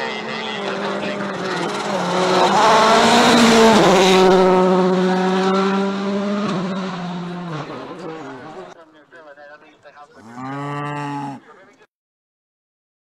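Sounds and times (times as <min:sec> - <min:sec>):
rally car engine at high revs: 0:00.0 - 0:08.7.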